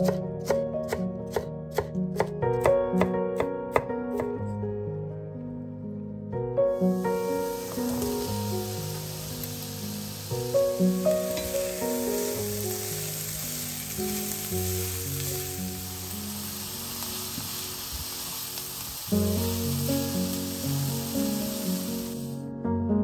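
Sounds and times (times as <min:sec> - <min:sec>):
soft background music: 0:00.0 - 0:23.0
vegetables sizzling in frying pan: 0:07.0 - 0:22.4.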